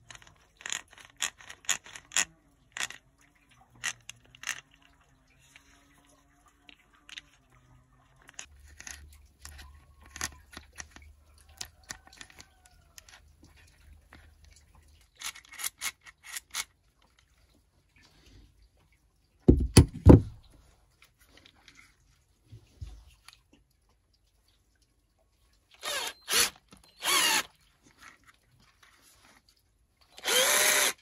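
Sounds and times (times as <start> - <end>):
plastic and metal parts clicking: 0.0 - 3.0, 3.8 - 4.9, 8.2 - 13.2, 15.1 - 16.7.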